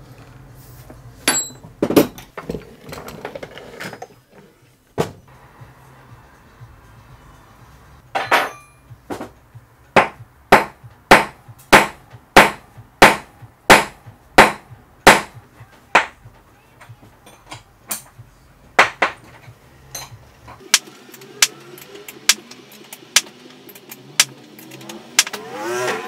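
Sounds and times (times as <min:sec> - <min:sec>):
hammer striking metal: 0:01.3 - 0:02.2, 0:08.1 - 0:09.3, 0:10.0 - 0:15.4, 0:20.0 - 0:25.4.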